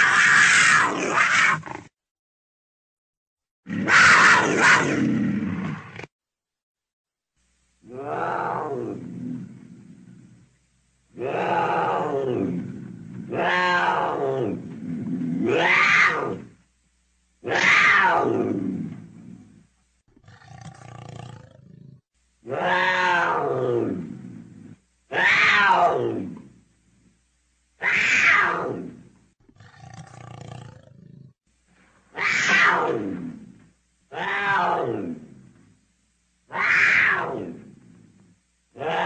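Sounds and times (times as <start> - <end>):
leopard calling: 32.1 - 35.2.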